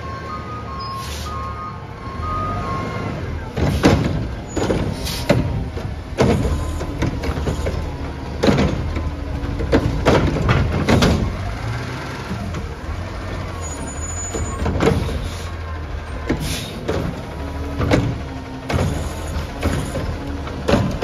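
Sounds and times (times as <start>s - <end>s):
diesel engine running: 0.0s - 21.0s
sharp knocks and clatters: 3.6s - 11.4s, 16.3s - 21.0s.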